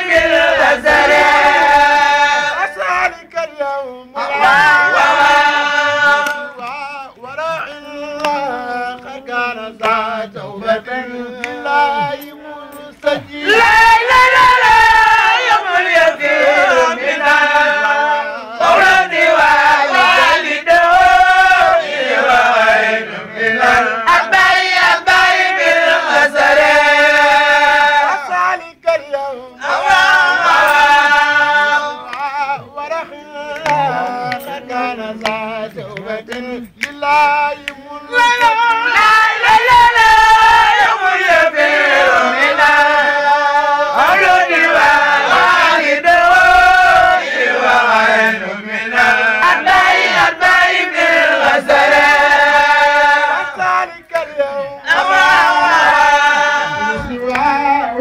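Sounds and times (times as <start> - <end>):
man chanting into a microphone: 5.9 - 13.4, 32.1 - 38.9.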